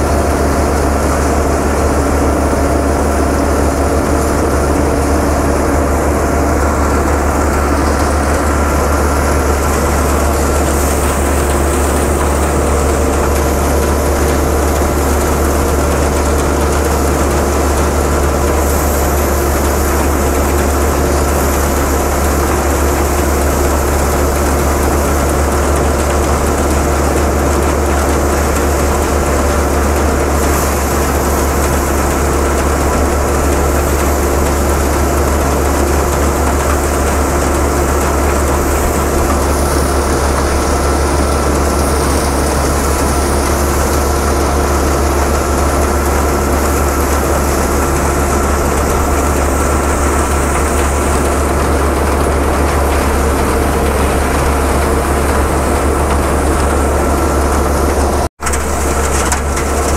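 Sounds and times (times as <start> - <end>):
thresher engine droning: 0.0 - 59.9.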